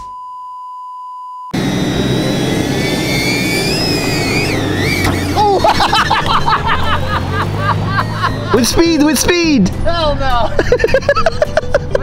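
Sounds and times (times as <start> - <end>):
test-card beep: 0.0 - 1.6
truck engine with high whine: 1.5 - 12.0.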